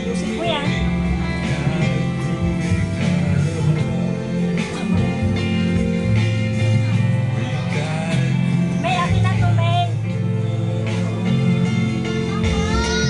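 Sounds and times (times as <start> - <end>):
pop music with guitar: 0.0 - 13.0.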